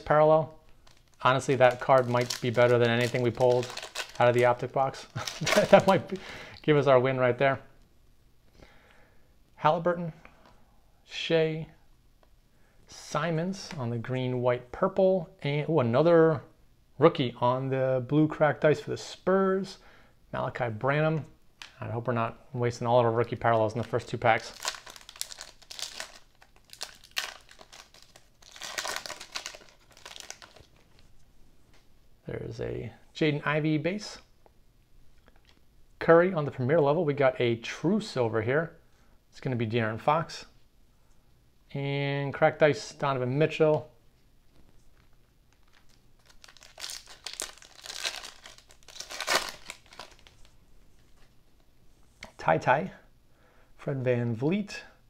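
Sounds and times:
foil wrapper crinkling and tearing: 0.8 - 6.2, 23.9 - 30.9, 44.9 - 50.5.

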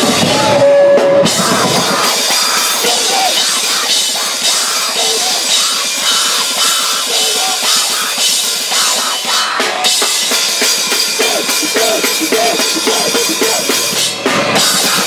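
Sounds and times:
drum kit with cymbals: 0.0 - 15.0
electric guitar: 0.0 - 15.0
person singing into microphone: 1.3 - 9.7, 11.1 - 13.8.

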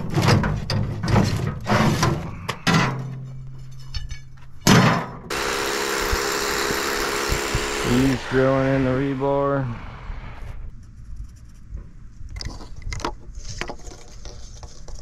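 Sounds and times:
power drill drilling: 5.3 - 10.6.

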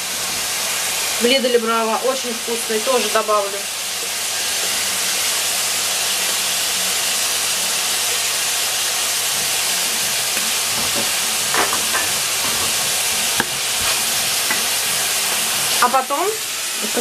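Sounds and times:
meat and vegetables sizzling in a pan: 0.0 - 17.0
stirring knocks and scrapes: 10.4 - 15.5.

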